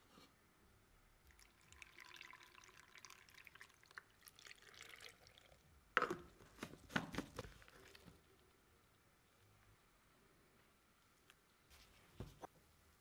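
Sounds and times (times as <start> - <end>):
water trickling and dripping: 1.2 - 5.6.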